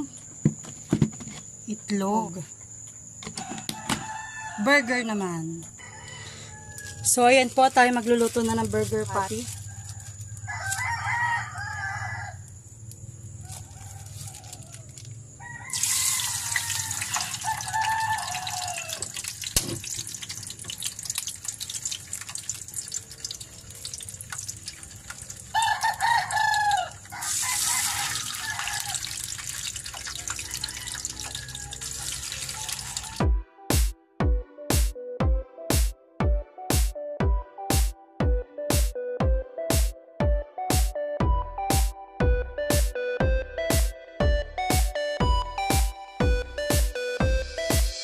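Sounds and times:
rooster crowing: 3.3 - 7.2, 9.2 - 12.6, 13.2 - 19.2, 25.4 - 33.2.

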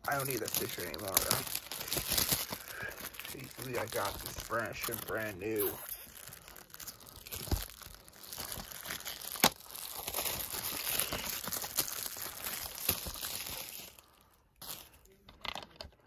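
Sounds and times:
plastic wrap crinkling: 0.0 - 16.0.

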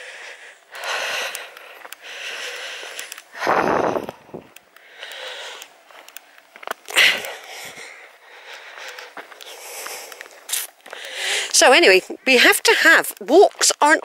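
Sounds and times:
person breathing hard: 0.0 - 6.2, 6.8 - 11.6.

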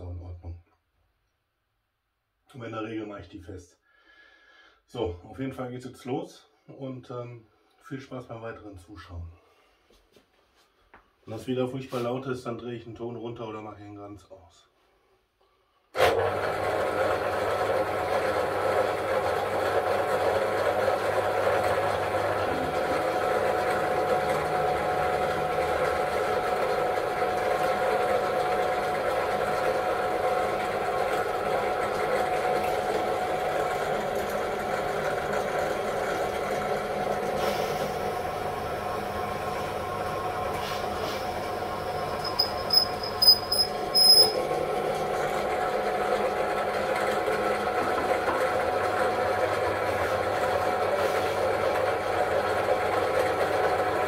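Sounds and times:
drill press motor running: 16.0 - 54.0
drill bit cutting into wood: 42.2 - 44.4.

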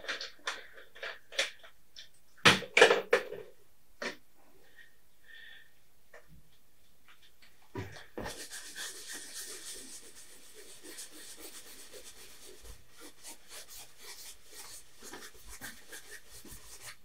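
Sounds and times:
paintbrush scrubbing canvas: 8.2 - 17.0.

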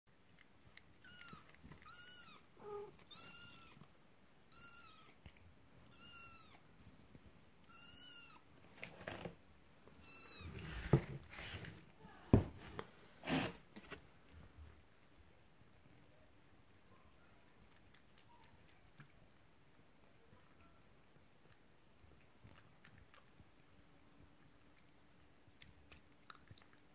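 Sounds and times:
kittens meowing: 1.0 - 3.8, 5.9 - 6.6, 7.7 - 8.4.

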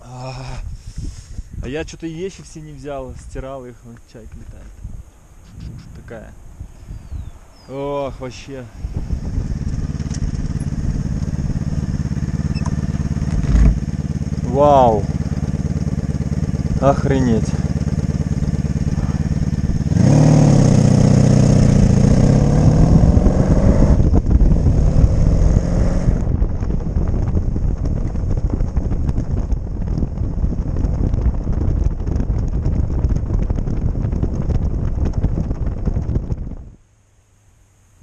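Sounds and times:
wind and road noise: 0.0 - 38.0
motorcycle engine revving: 9.0 - 35.8.

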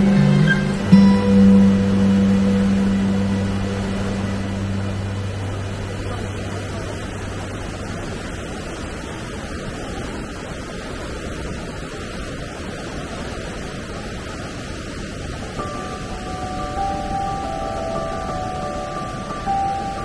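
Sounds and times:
background music: 0.0 - 7.6, 15.6 - 20.0
waterfall rushing: 0.0 - 20.0.

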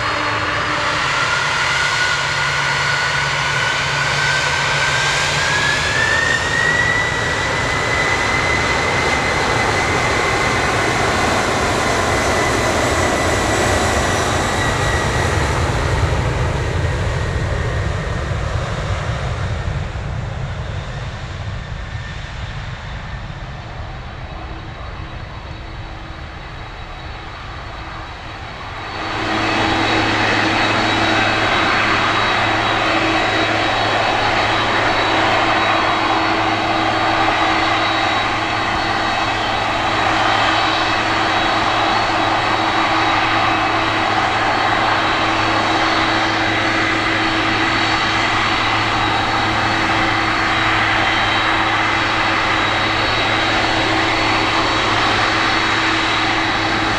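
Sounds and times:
jet engines at takeoff thrust: 0.0 - 56.9.

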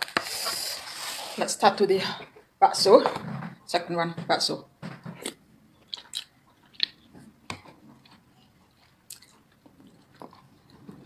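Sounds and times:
person chewing: 5.2 - 11.0.

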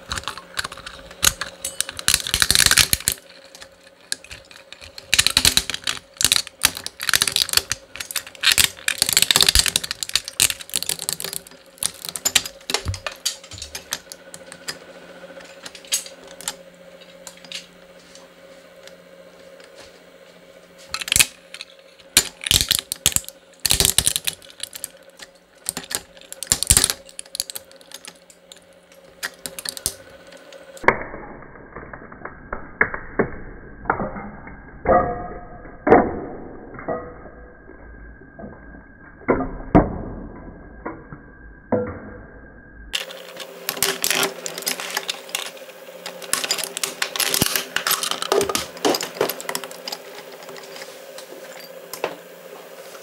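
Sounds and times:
shredder crunching plastic: 0.0 - 14.7, 20.9 - 30.5, 43.0 - 50.7
gear motor hum: 0.0 - 53.0.

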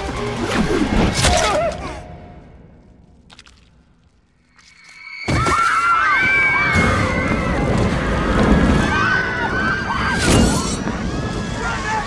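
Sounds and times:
many voices screaming: 5.2 - 12.0.

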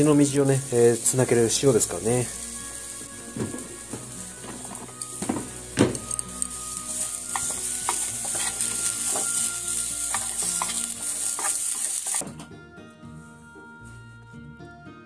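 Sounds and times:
turnip slices sizzling in pan: 0.0 - 12.2
soft background music: 0.0 - 15.0
chopsticks clicking against pan: 6.0 - 9.4, 10.1 - 12.2.

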